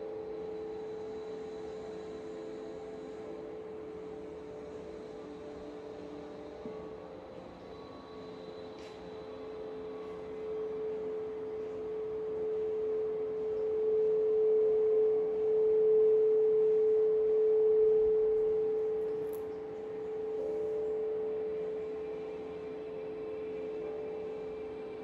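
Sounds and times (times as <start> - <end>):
sustained ringing tone: 9.3 - 25.0.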